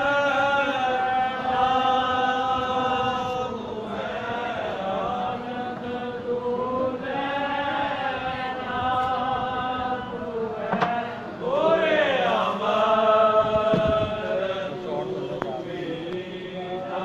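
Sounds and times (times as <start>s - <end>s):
group chanting held notes: 0.0s - 17.0s.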